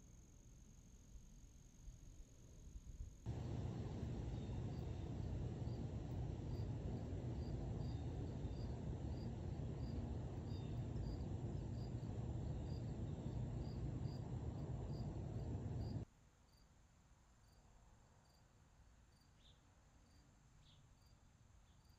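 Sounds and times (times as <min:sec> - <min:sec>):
cricket chirping: 0:03.2 - 0:16.6
low rumble: 0:03.3 - 0:16.0.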